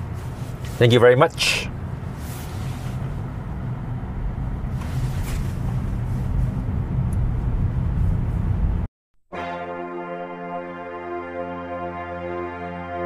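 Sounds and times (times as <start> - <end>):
road and tyre noise in car cabin: 0.0 - 8.9.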